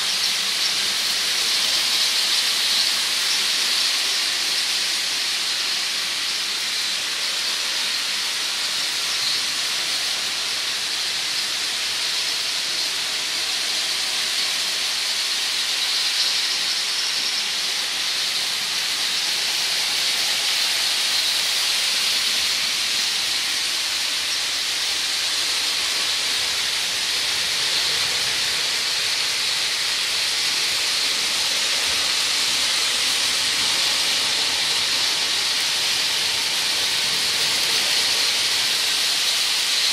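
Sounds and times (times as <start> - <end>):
toy train motors whirring: 0.0 - 39.9.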